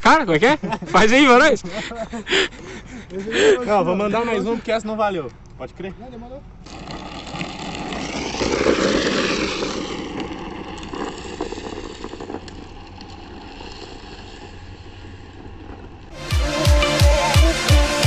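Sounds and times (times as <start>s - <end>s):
wheels rolling and sliding on asphalt: 0.0s - 18.0s
music with heavy beat: 16.2s - 18.0s.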